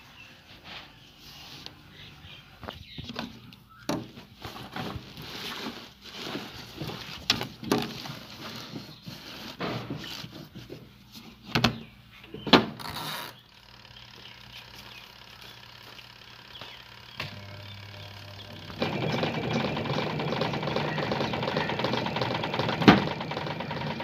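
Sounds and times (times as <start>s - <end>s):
cloth rustling against plastic: 4.3s - 11.4s.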